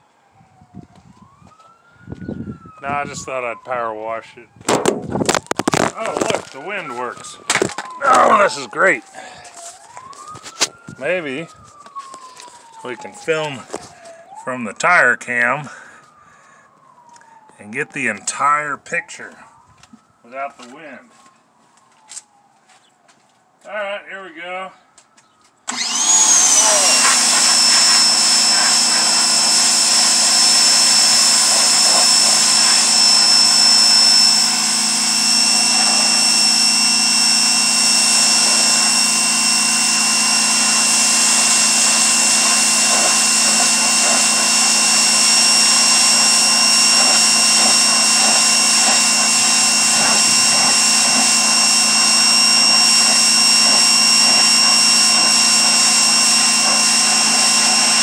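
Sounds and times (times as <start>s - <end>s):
pressure washer motor whine: 0.2s - 14.9s, 25.7s - 58.0s.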